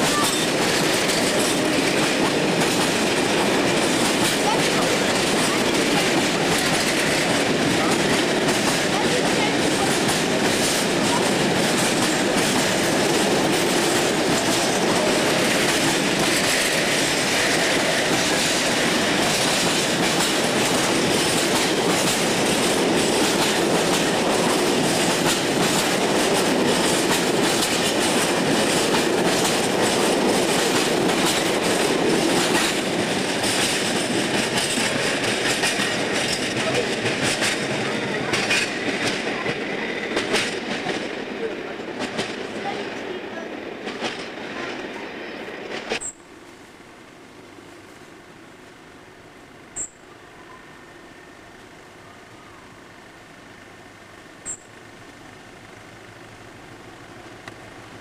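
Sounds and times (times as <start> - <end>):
train wheels clattering over rail joints: 0.0 - 43.0, 43.6 - 44.8, 45.5 - 46.2.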